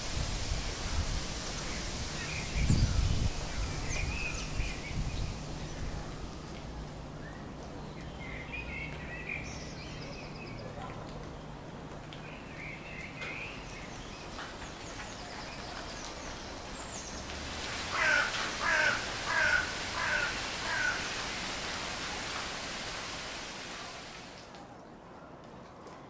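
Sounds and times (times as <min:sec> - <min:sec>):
songbirds chirping faintly: 0:01.1 - 0:24.7
crow cawing: 0:17.9 - 0:21.2.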